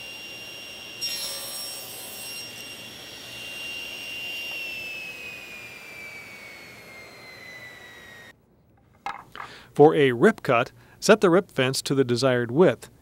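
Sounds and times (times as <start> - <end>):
table saw cutting board: 0.0 - 8.3
saw blade whining: 0.0 - 8.4.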